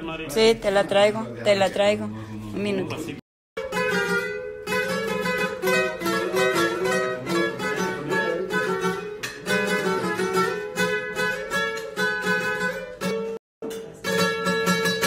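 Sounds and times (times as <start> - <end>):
acoustic guitar strumming: 3.6 - 15.0.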